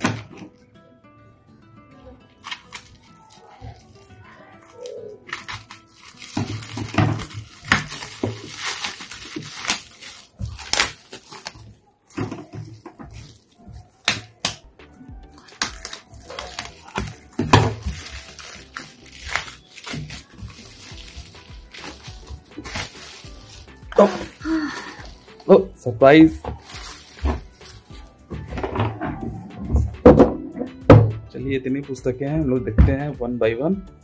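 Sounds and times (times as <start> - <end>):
plastic film crinkling: 2.0 - 29.8
cardboard sheets handled: 2.4 - 14.3, 15.5 - 25.6, 26.3 - 29.9.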